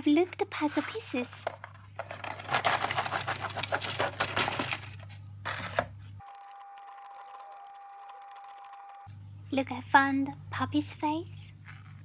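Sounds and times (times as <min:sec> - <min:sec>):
faint steady hum: 0:00.0 - 0:12.0
puzzle pieces clattering onto table: 0:02.0 - 0:05.0.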